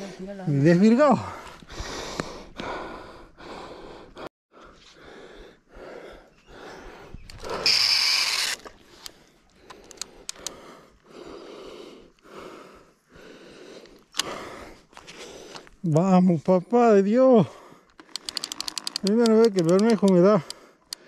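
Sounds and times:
person breathing heavily: 0:01.2 - 0:07.9, 0:08.7 - 0:15.8, 0:17.3 - 0:18.7, 0:20.4 - 0:21.0
sharp clicks: 0:07.2 - 0:10.6, 0:13.8 - 0:14.4, 0:17.8 - 0:21.0.

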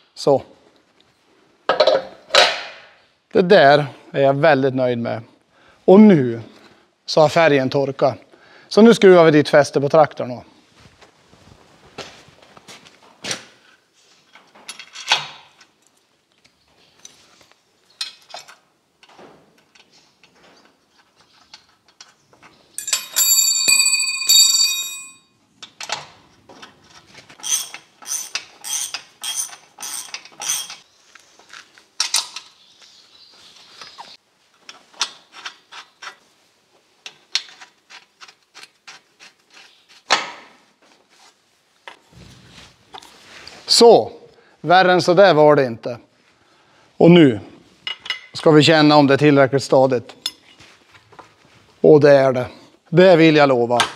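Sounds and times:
bright ringing metal: 0:22.8 - 0:25.3
spanner clicking on metal: 0:27.4 - 0:30.8.

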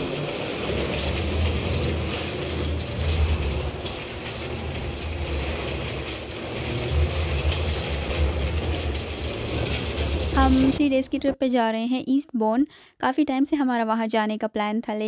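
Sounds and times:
faint irregular clacks: 0:00.0 - 0:11.1
rumble of rolling wheels: 0:00.0 - 0:11.4.

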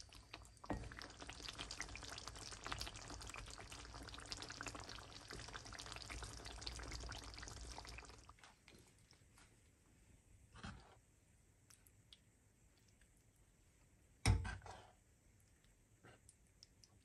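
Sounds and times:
curry sizzling in oil: 0:00.0 - 0:08.3.

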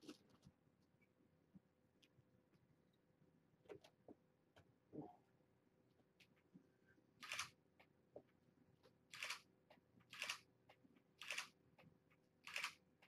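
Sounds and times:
camera shutter clicks: 0:12.5 - 0:12.8.

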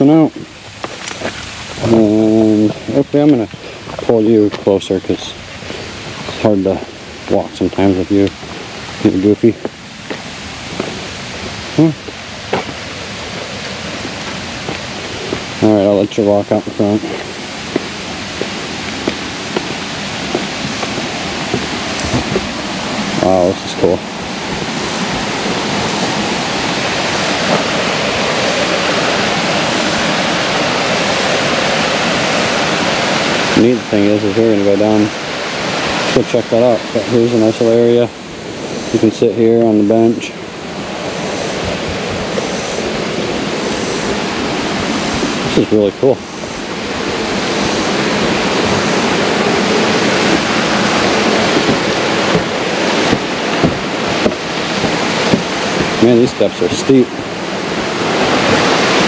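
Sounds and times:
footsteps on wooden steps: 0:00.0 - 0:01.9, 0:02.6 - 0:04.7, 0:08.2 - 0:09.0, 0:09.6 - 0:15.6, 0:17.0 - 0:31.4, 0:48.0 - 0:56.4
small waterfall splashing: 0:00.0 - 0:59.0.

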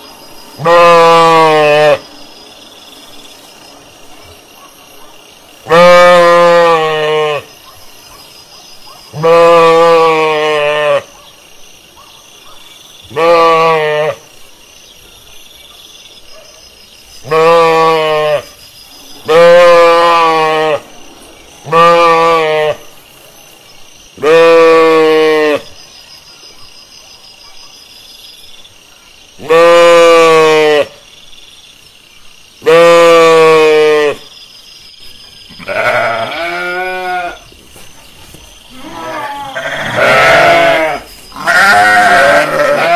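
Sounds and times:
sheep bleating: 0:05.7 - 0:07.5, 0:09.2 - 0:11.0, 0:13.1 - 0:14.2, 0:17.3 - 0:18.5, 0:21.7 - 0:22.8, 0:24.2 - 0:25.6, 0:29.4 - 0:30.9, 0:32.7 - 0:34.2, 0:35.6 - 0:37.4, 0:38.7 - 0:42.9.

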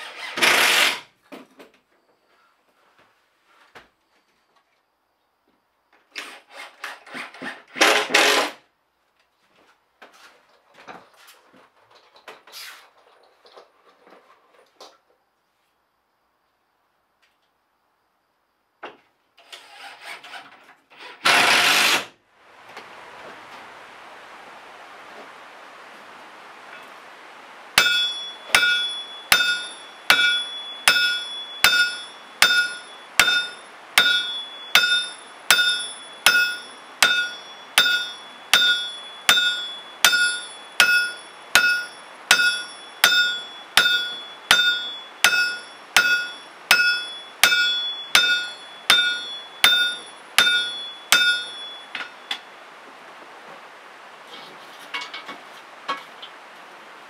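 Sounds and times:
hammer striking metal: 0:27.8 - 0:52.4.

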